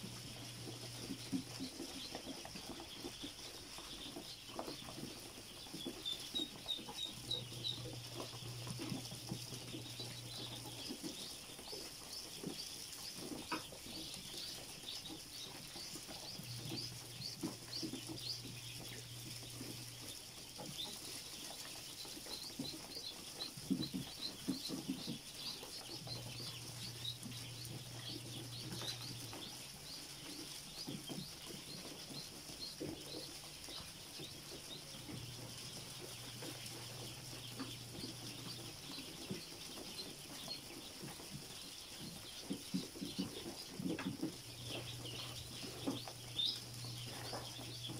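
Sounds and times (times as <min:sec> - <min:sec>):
ducklings peeping: 0:00.0 - 0:47.9.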